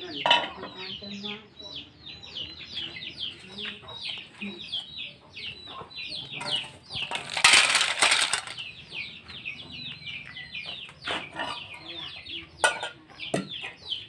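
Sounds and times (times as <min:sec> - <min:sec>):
chicks cheeping: 0:00.0 - 0:14.0
shells rattling on metal: 0:07.1 - 0:08.6.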